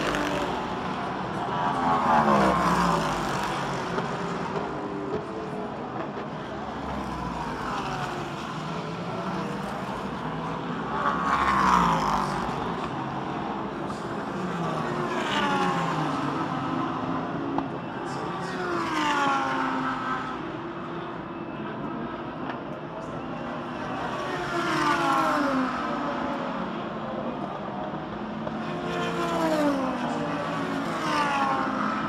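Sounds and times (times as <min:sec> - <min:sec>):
race cars passing: 0:00.0 - 0:32.0.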